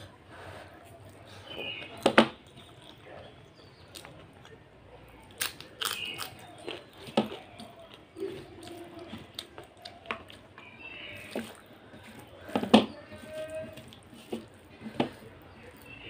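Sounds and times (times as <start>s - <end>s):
fingers squishing mushy rice: 0.0s - 16.0s
wet chewing and lip smacks: 1.8s - 12.4s.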